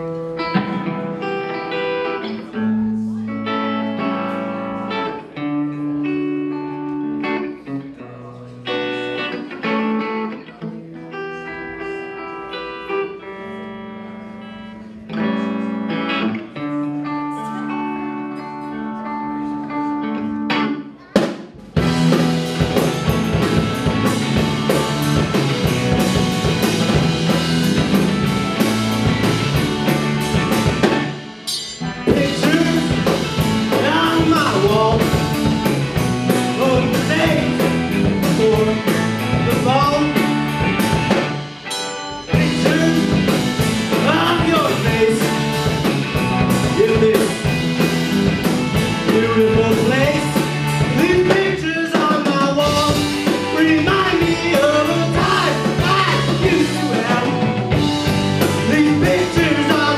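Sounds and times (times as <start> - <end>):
live rock band: 0.0 - 59.9
person singing: 31.8 - 47.8, 48.7 - 59.9.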